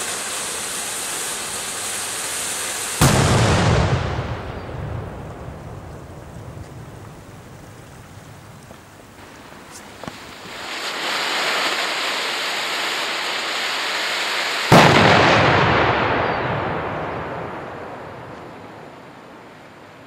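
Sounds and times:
firework hissing: 0.0 - 4.6, 5.7 - 15.8
loud firework bang: 3.0 - 7.0, 14.7 - 18.8.

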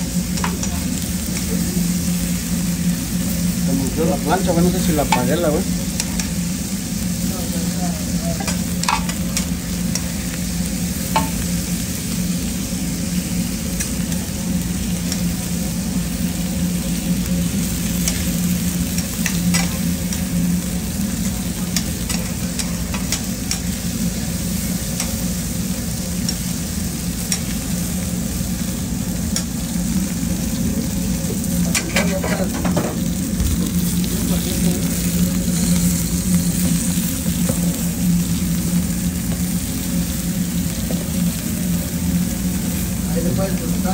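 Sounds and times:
meat sizzling on griddle: 0.0 - 43.9
steady low hum: 0.0 - 43.9
metal tongs clacking on griddle: 0.3 - 1.5, 6.0 - 6.4, 8.4 - 10.2, 11.1 - 11.4, 18.0 - 18.3, 18.9 - 20.3, 21.2 - 23.8, 27.3 - 27.6, 31.7 - 33.0.

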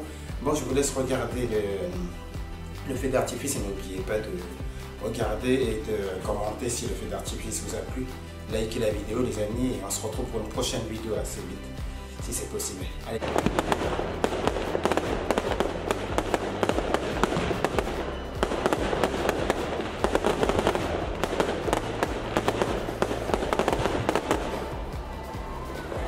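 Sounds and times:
music playing: 0.0 - 26.0
fireworks crackling and popping: 13.1 - 25.2.

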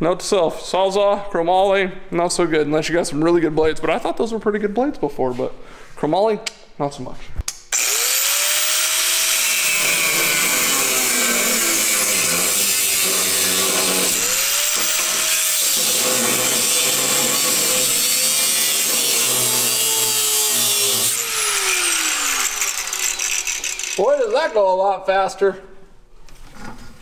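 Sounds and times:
cutoff wheel cutting metal tube: 7.7 - 24.1.

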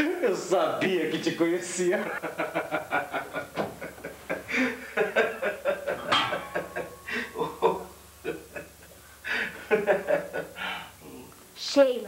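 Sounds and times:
man laughing: 1.9 - 10.9.

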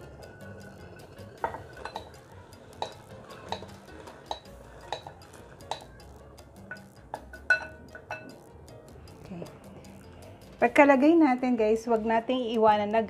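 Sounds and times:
spatula clinking on glass bowl: 0.2 - 6.0, 6.6 - 8.4.

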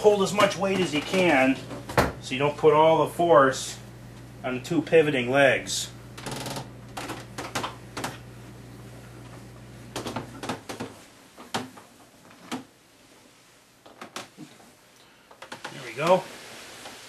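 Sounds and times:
wooden cabinet knocks and bumps: 1.8 - 2.2.

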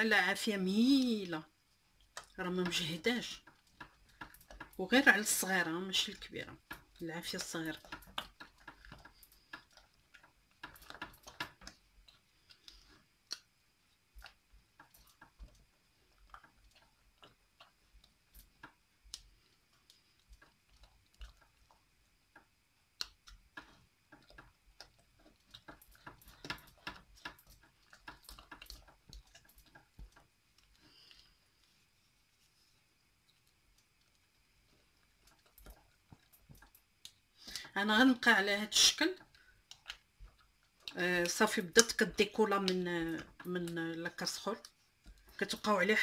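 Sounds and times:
spoon stirring thick dough: 0.0 - 46.0.

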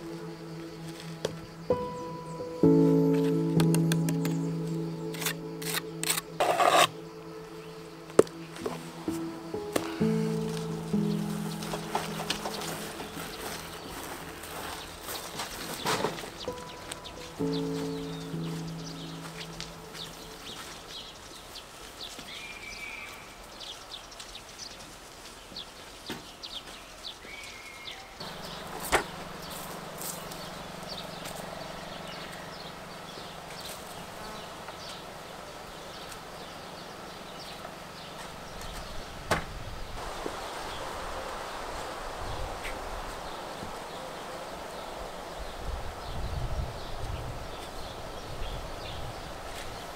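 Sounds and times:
high chirps of birds or insects: 0.0 - 24.9, 26.0 - 49.9
steady low hum: 28.2 - 39.2.

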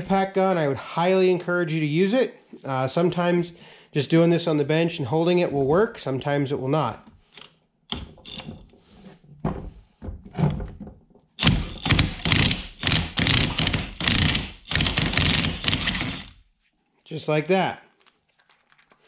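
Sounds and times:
impact wrench hammering: 11.4 - 16.4.

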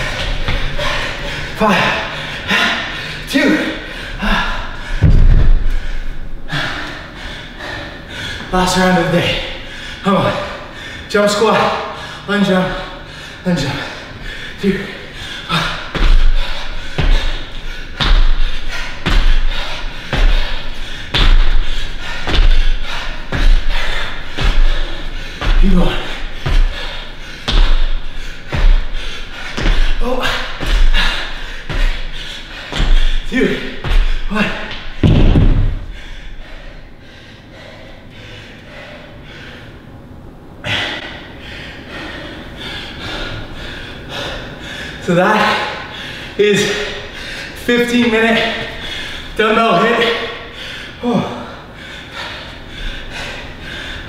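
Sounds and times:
man gasping: 0.0 - 8.5, 9.3 - 35.0, 35.6 - 39.8, 40.6 - 54.0
man panting hard: 0.0 - 54.0
feet landing hard on gym floor: 5.0 - 5.8, 18.0 - 19.5, 20.1 - 24.8, 25.4 - 32.1, 33.8 - 36.0.

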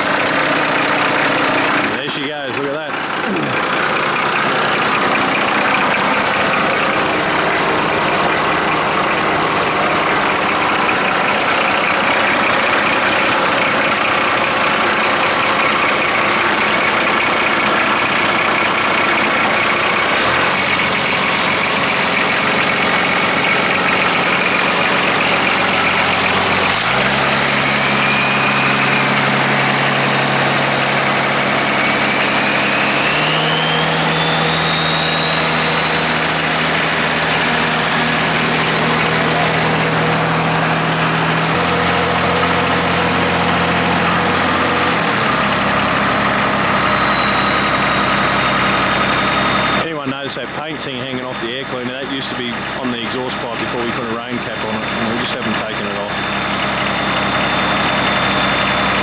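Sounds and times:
diesel engine running: 0.0 - 59.0
high whine: 19.4 - 59.0.

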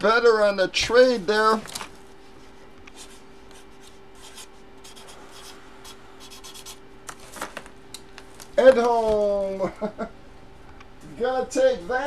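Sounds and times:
steady low hum: 0.0 - 12.0
marker scratching on cardboard: 2.9 - 6.8.

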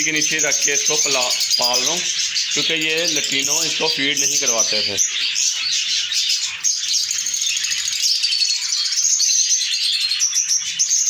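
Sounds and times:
small parrots chattering: 0.0 - 11.0.

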